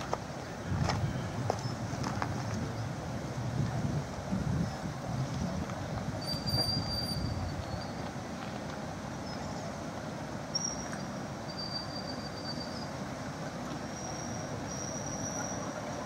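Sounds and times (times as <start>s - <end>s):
thin high squeals: 6.2s - 8.0s, 11.5s - 13.0s, 13.8s - 16.0s.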